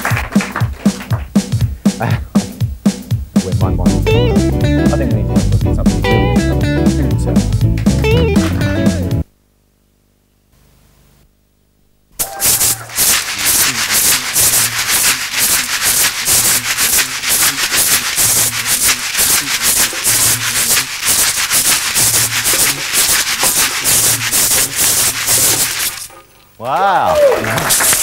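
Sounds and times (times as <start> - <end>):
beaded gourd shakers rattling: 12.2 - 26.4.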